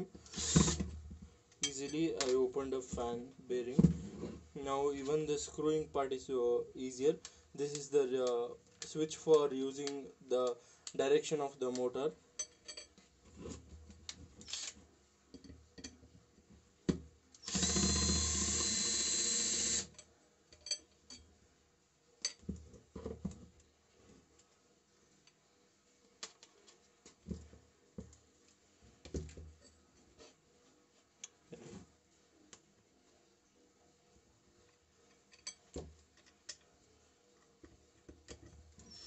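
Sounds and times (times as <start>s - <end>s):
cordless drill driving screw: 0.3s - 0.8s, 17.4s - 20.0s.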